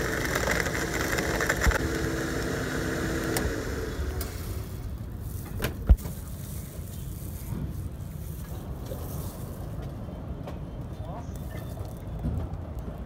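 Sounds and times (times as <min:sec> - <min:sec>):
electric blender running: 0:00.0 - 0:05.0.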